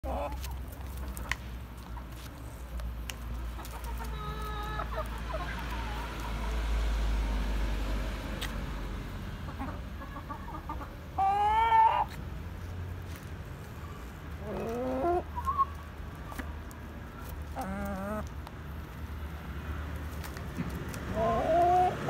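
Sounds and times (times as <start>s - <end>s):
chickens clucking: 0.0s - 6.7s, 9.4s - 12.2s, 13.8s - 18.4s, 20.3s - 22.0s.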